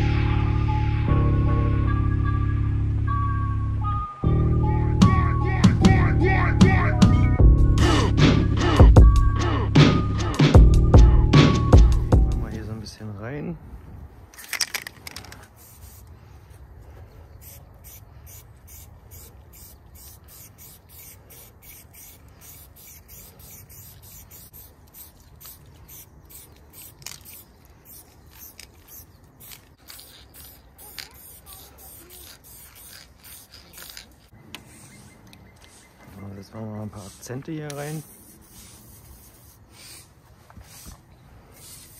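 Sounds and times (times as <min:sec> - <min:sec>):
spray paint can hissing: 0:14.4 - 0:16.3, 0:17.4 - 0:35.0, 0:37.0 - 0:41.9.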